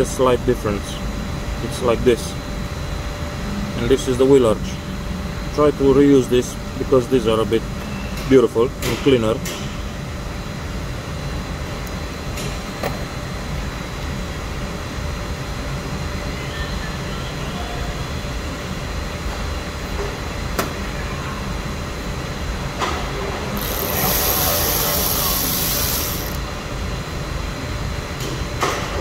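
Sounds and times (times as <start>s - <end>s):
low workshop rumble: 17.8s - 29.0s.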